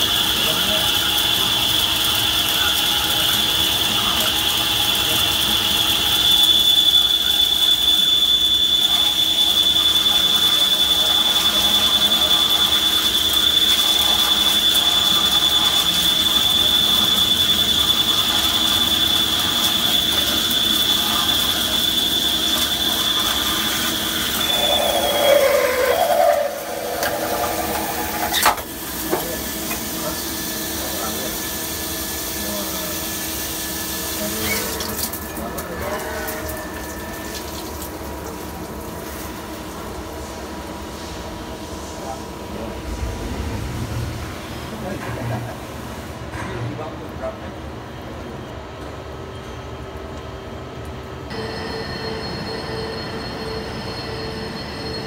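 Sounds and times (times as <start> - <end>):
lathe drilling with high whine: 0.0 - 34.7, 51.3 - 55.0.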